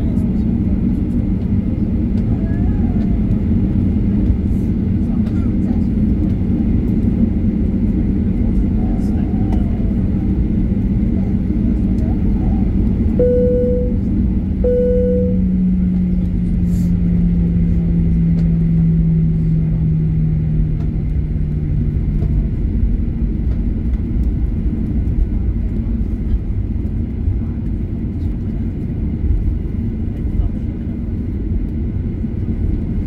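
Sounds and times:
jet engine and cabin rumble: 0.0s - 33.0s
low engine tone sinking: 13.0s - 22.1s
short chime tones: 13.2s - 14.0s, 14.7s - 15.5s.

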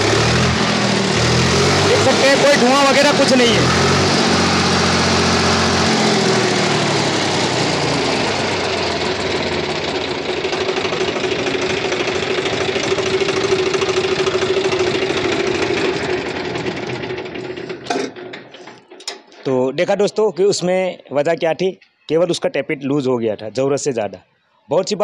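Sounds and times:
diesel tractor engine running: 0.0s - 18.0s.

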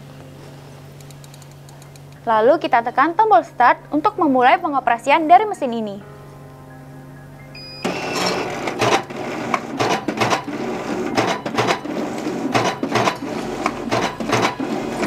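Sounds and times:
short beep: 7.5s - 8.2s
card cutter running: 7.8s - 15.0s.

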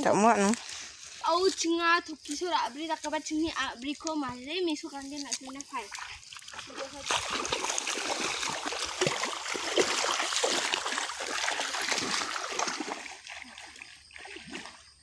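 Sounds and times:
feet wading through water and mud: 0.0s - 15.0s.

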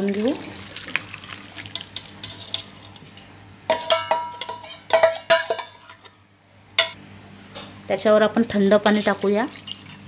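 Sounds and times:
steel utensils clinking: 1.7s - 6.2s.

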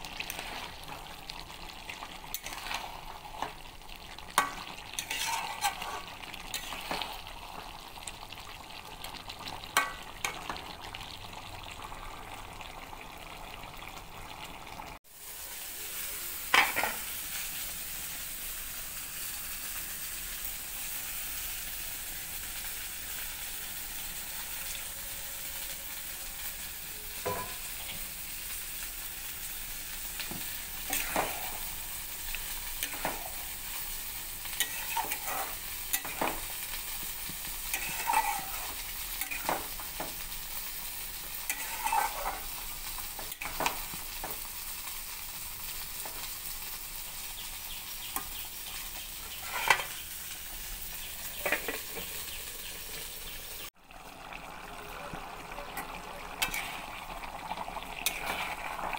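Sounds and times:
curry sizzling in a pot: 0.0s - 58.9s
spoon scraping and clacking on pot: 2.3s - 3.6s, 4.3s - 7.2s, 30.2s - 31.6s, 32.8s - 33.4s, 34.6s - 36.5s, 37.3s - 40.2s, 41.4s - 42.5s, 49.3s - 50.0s, 51.4s - 52.1s, 55.8s - 56.9s, 58.0s - 58.8s.

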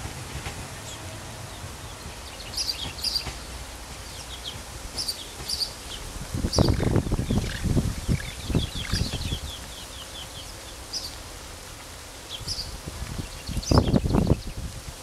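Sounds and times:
train wheels knocking on rail joints: 0.0s - 9.6s
diesel railcar rumble: 0.0s - 13.3s
birds chirping: 0.8s - 11.2s, 12.3s - 14.6s.

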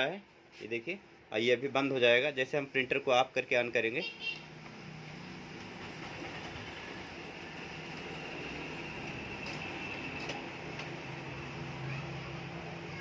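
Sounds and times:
printer mechanical whir: 5.5s - 11.8s.

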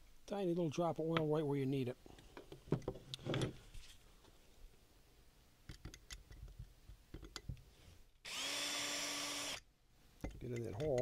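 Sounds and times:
cordless drill whirring: 8.2s - 9.7s
tools clicking on workbench: 10.2s - 11.0s.

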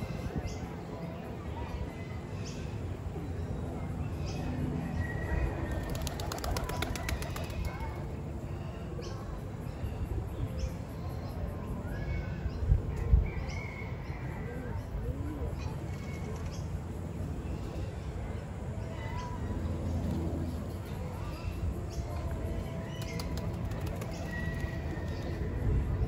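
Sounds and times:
fluttering run of clicks: 5.7s - 7.8s.

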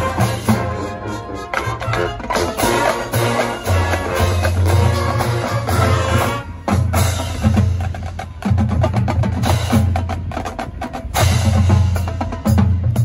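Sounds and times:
sustained brass chords: 0.0s - 7.1s
marching band playing: 0.0s - 13.0s.

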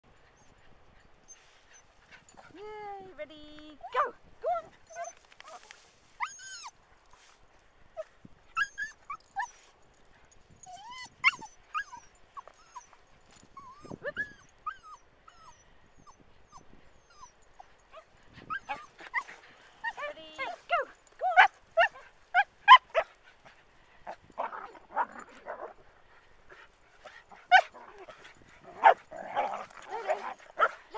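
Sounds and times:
dogs yipping and whining: 3.8s - 6.8s, 8.5s - 9.7s, 10.6s - 23.2s, 24.2s - 25.8s, 26.5s - 30.9s.

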